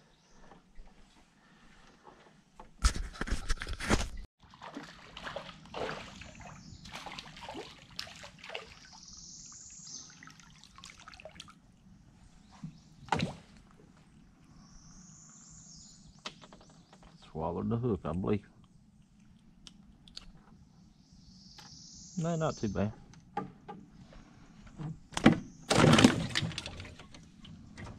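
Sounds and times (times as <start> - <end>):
water sloshing: 4.4 - 9.2, 10.1 - 14.4.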